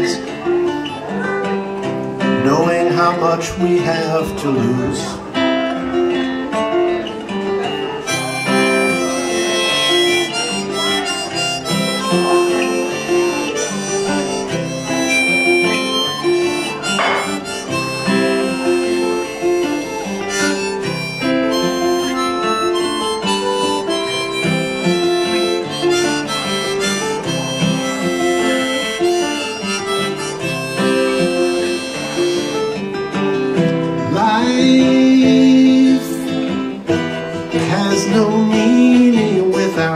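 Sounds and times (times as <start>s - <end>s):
acoustic guitar chords: 0.0s - 39.9s
harmonica solo: 7.6s - 39.1s.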